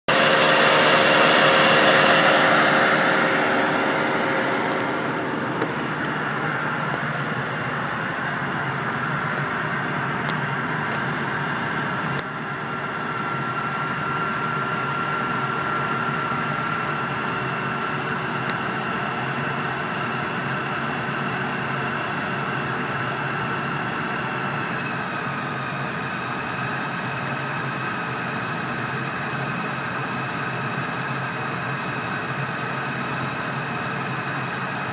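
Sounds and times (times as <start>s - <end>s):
cooling fans blowing: 0.0s - 34.9s
steady whine: 0.0s - 34.9s
tractor diesel engine under load: 0.0s - 34.9s.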